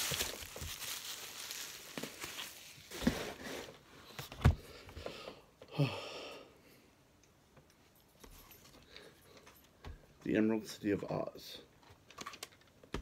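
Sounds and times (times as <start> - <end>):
plastic wrapping crinkling: 0.0 - 3.5
person sighing or grunting: 5.1 - 6.5.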